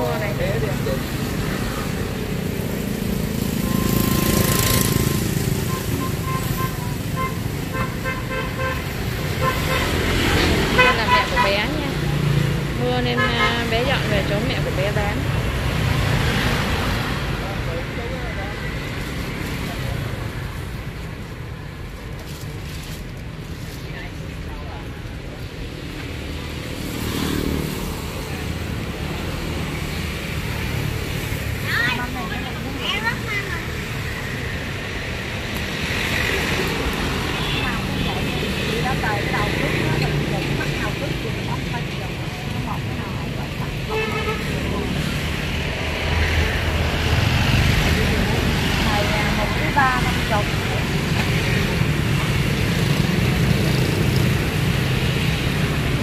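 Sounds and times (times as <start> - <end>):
motorbikes and cars passing: 0.0 - 56.0
street traffic rumble: 0.0 - 56.0
vehicle horn: 43.9 - 44.6.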